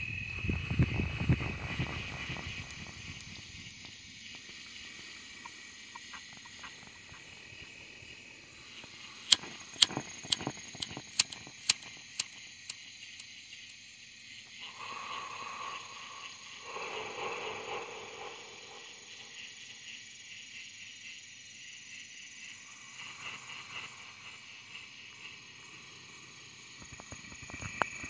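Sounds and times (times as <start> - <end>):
crickets trilling: 0.0 - 28.0
sharp clicks: 9.2 - 13.8.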